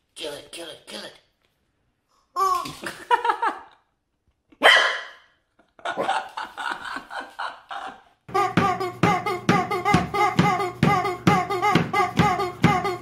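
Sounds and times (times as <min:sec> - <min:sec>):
rhythmic music: 0:08.3 - 0:13.0.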